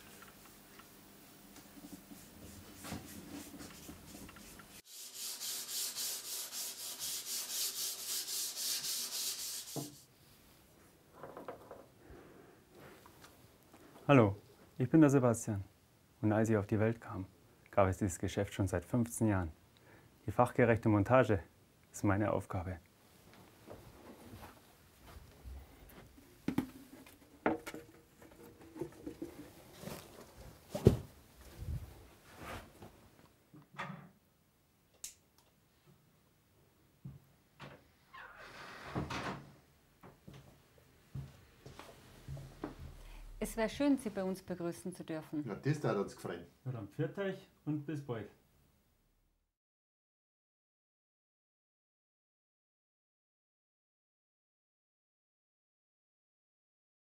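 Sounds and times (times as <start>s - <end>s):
hand sanding wood: 1.8s - 10.1s.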